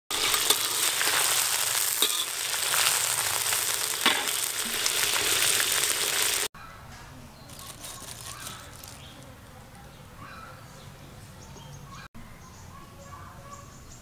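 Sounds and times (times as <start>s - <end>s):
food sizzling in a wok: 0.1s - 6.5s.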